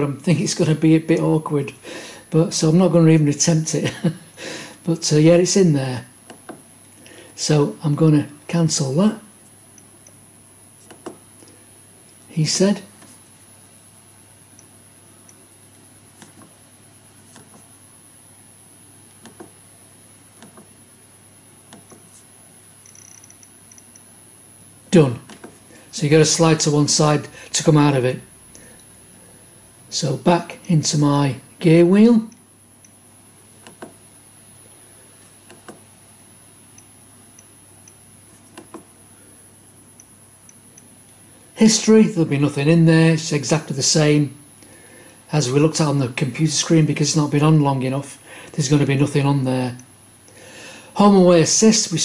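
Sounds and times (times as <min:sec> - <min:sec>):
faint thermostat ticks: 0:09.4 - 0:10.2, 0:14.5 - 0:15.4, 0:22.8 - 0:24.1, 0:32.3 - 0:33.0, 0:36.7 - 0:38.8, 0:39.9 - 0:41.2.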